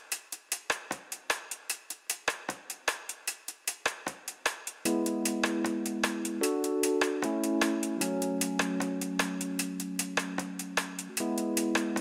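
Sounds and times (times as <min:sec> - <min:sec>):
held chord: 0:04.9 - 0:12.0.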